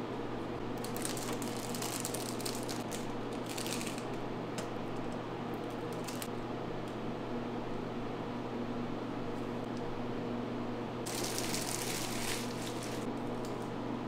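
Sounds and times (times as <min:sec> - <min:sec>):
steady electrical hum: 0:00.0 - 0:14.0.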